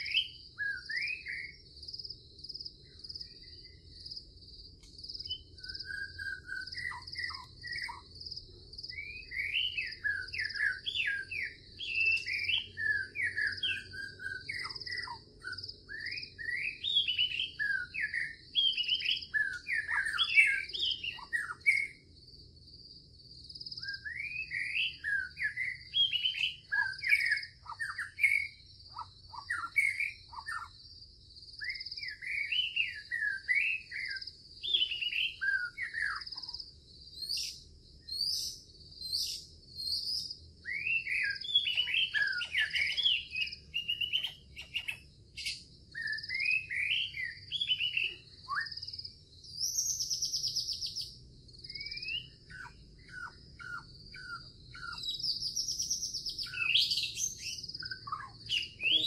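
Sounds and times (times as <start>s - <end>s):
insects trilling: 0.0s - 59.0s
songbirds singing: 0.0s - 59.0s.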